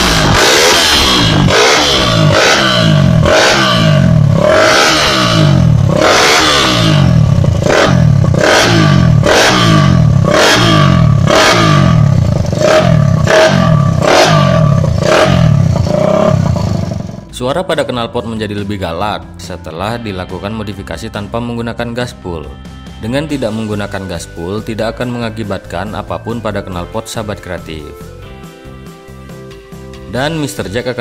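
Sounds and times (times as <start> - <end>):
motorcycle engine revving: 0.0 - 18.6.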